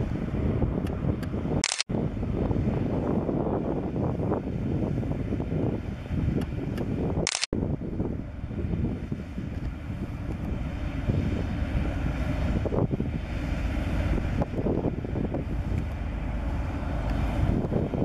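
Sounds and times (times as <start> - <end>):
locomotive engine rumble: 0.0 - 18.0
sharp clicks: 0.8 - 1.9.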